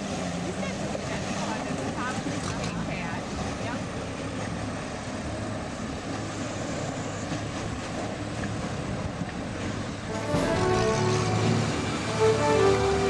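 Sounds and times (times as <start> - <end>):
noisy wash: 7.7 - 13.0
diesel engine humming: 10.0 - 13.0.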